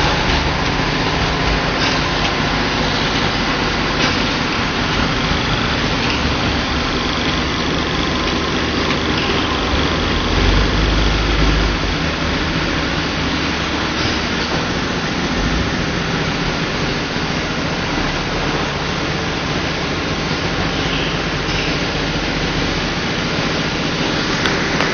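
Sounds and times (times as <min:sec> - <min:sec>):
low rumble: 0:00.0 - 0:19.0
machine noise: 0:00.0 - 0:24.9.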